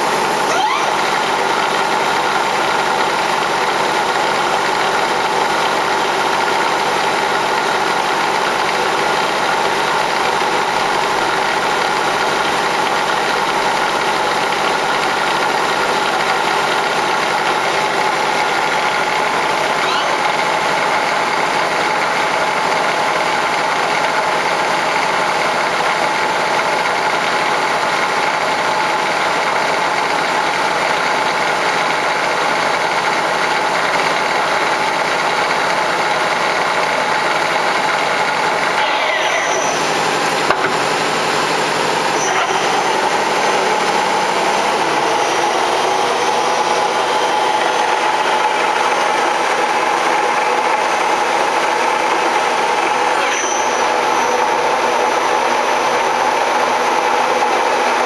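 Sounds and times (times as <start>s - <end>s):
machine humming and whining: 0.0s - 58.0s.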